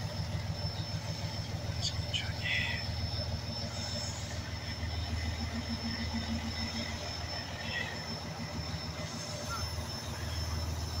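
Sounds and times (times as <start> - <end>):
diesel engine idling: 0.0 - 11.0
thin high whine: 0.0 - 11.0.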